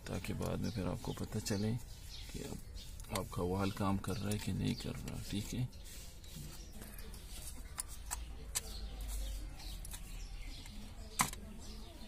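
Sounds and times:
birds chirping faintly: 0.0s - 12.0s
plastic clicks and knocks: 10.6s - 11.4s.

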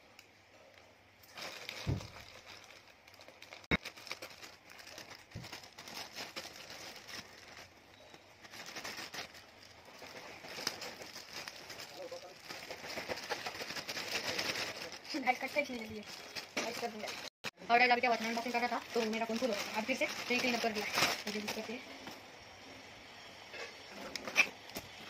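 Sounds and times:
plastic mailer bag crinkling: 1.2s - 17.3s, 17.9s - 21.8s.

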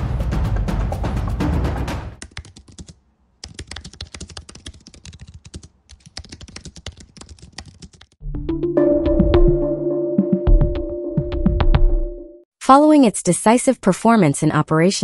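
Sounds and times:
fast typing on computer keyboard: 2.2s - 8.2s
intro music: 8.2s - 12.5s
music sting with held tones: 8.3s - 12.4s.

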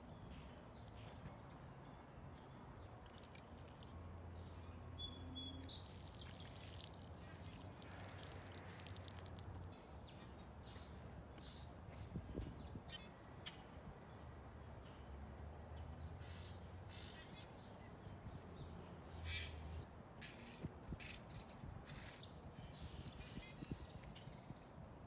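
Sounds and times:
water pouring onto soil: 3.0s - 4.0s, 5.7s - 9.8s.

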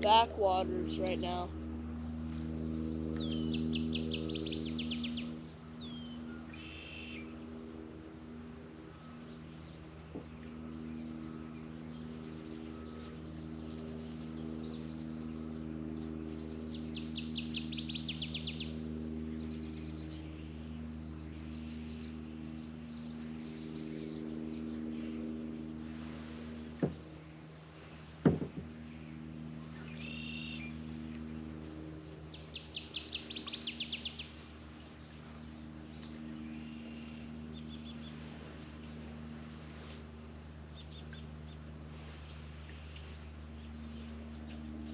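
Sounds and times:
songbird singing trills: 0.0s - 7.4s, 8.9s - 25.6s, 28.9s - 31.1s, 31.8s - 39.0s
steady low hum: 0.0s - 44.9s.

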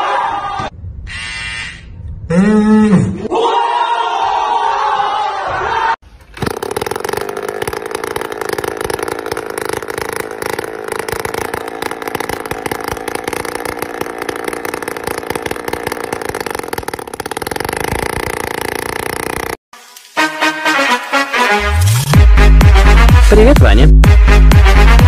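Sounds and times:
small engine puttering: 6.3s - 19.6s.

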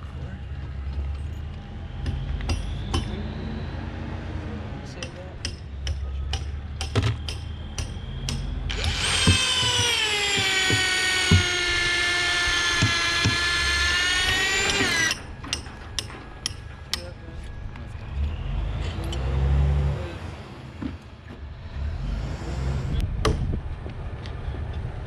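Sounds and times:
tools clicking and knocking: 5.0s - 11.6s, 14.6s - 17.1s
cordless drill boring into log: 8.7s - 15.2s.

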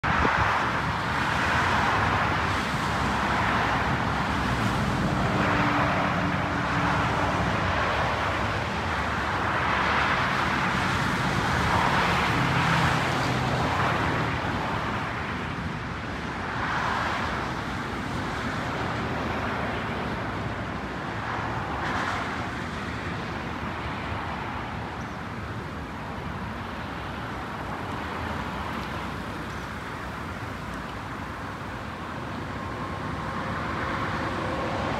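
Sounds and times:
road traffic: 0.0s - 34.9s
jet engine passing overhead: 32.6s - 34.9s.

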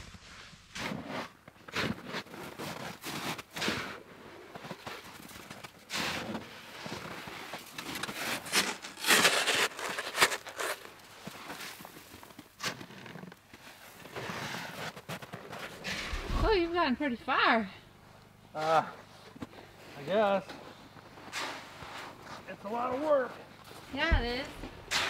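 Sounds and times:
snow shovel scraping snow: 0.2s - 5.2s, 5.9s - 16.6s, 21.2s - 25.0s
footsteps crunching in snow: 4.5s - 16.5s.

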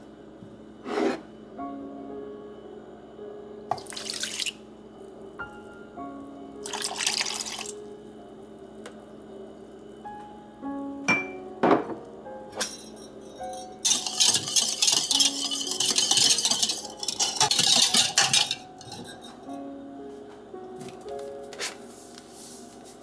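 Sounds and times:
background music: 1.5s - 23.0s
milk pouring and splashing: 3.8s - 4.6s, 6.7s - 7.7s.

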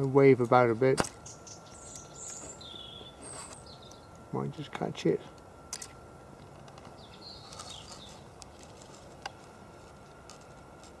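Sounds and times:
faint bird chirps: 1.2s - 4.2s, 6.9s - 8.2s.

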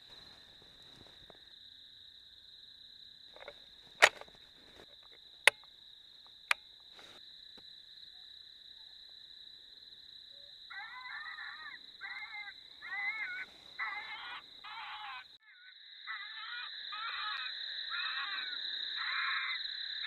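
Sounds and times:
crickets chirring: 0.0s - 20.0s
rifle bolt metallic clicks: 3.4s - 4.3s.

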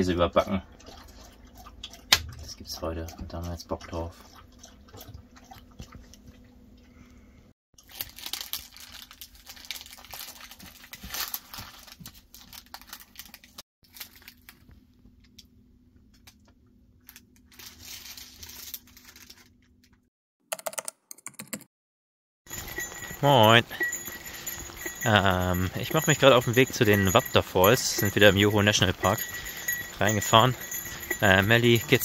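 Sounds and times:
packaging crinkling: 7.8s - 14.7s, 17.0s - 20.0s.

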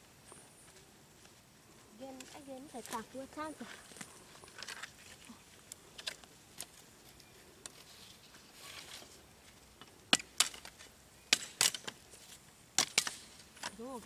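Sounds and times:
faint rustling and small snaps: 0.3s - 10.9s.

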